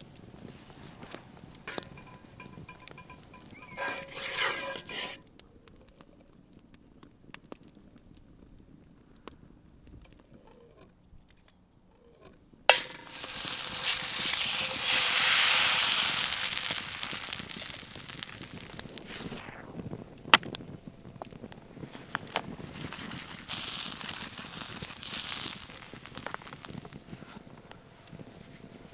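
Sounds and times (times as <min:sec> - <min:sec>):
egg sizzling in skillet: 0:00.0 - 0:05.2, 0:12.7 - 0:27.2
campfire crackle: 0:00.0 - 0:11.4, 0:12.3 - 0:28.9
egg cracking: 0:01.6 - 0:05.2, 0:12.7 - 0:19.1, 0:22.3 - 0:27.2.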